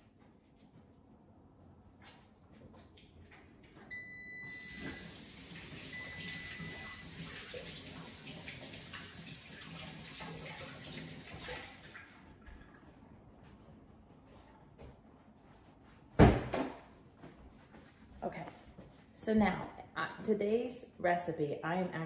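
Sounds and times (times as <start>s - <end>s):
faucet running: 4.4s - 12.2s.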